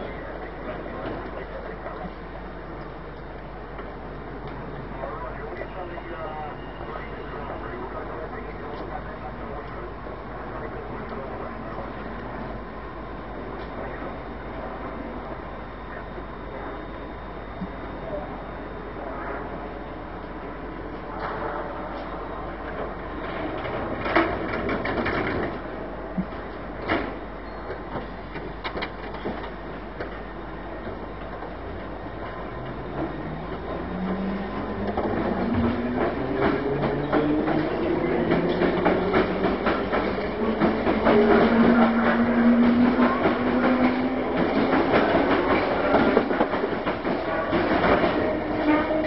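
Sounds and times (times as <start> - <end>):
train doors shutting: 19.9 - 49.0
train wheels clattering: 23.3 - 30.2, 32.3 - 49.0.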